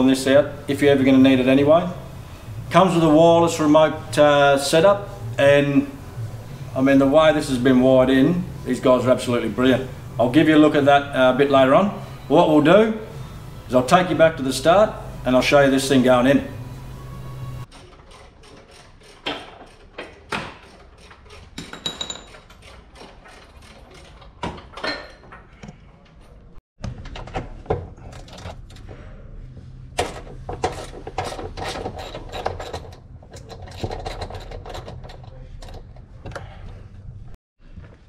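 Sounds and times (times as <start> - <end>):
tools clattering on fasteners: 17.8 - 25.6.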